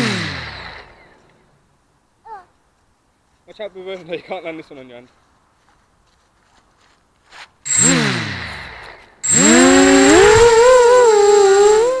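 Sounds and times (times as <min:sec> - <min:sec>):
quadcopter motors whining: 0:00.0 - 0:01.2, 0:07.7 - 0:12.0.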